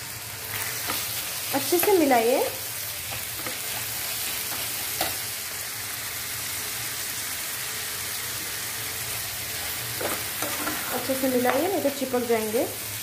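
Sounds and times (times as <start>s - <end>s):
food sizzling in a frying pan: 0.0s - 13.0s
metal spatula stirring: 10.0s - 11.2s.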